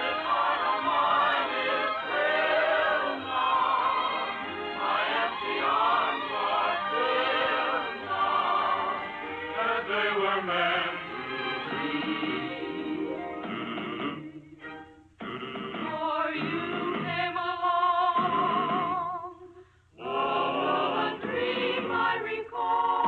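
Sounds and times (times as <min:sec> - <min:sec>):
orchestral accompaniment: 0:00.0 - 0:17.3
operatic choral singing: 0:00.0 - 0:23.0.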